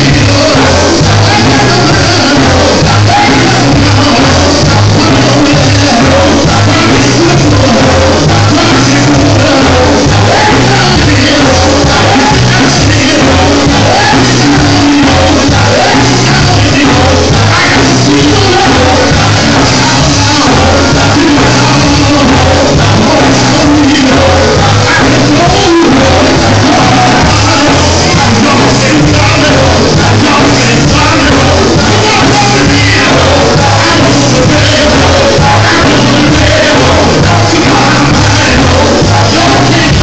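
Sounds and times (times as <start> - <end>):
electric guitar: 0.0 - 40.0
lead singer on a microphone: 0.0 - 40.0
steady bass line: 0.0 - 40.0.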